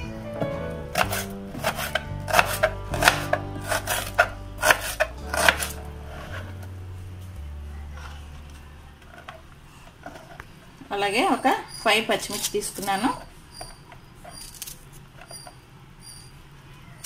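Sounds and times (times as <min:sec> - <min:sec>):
knife slicing onion on board: 0:00.9 - 0:06.4.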